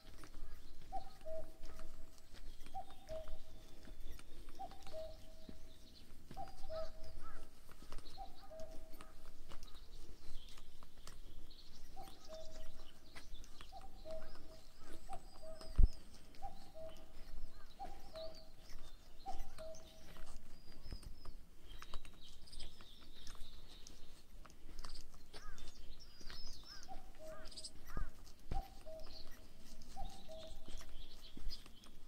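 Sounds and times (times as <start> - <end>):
bird chirps and trills: 0.0 - 32.0
footsteps on dirt trail: 0.0 - 32.0
bird two-note call: 0.9 - 3.9, 4.6 - 5.7, 6.4 - 7.5, 8.1 - 9.1, 13.7 - 18.6, 26.7 - 30.8.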